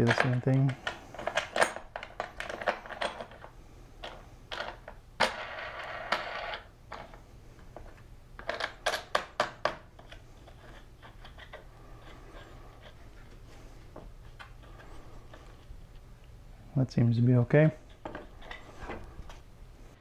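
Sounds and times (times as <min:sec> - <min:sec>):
clamp parts clicking and knocking: 0:00.0 - 0:04.9
faint steady hum: 0:00.0 - 0:20.0.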